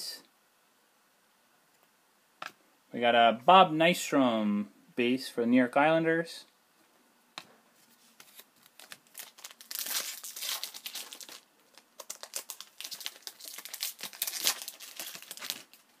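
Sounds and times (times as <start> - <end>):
card pack wrappers crinkling: 8.2 - 16.0.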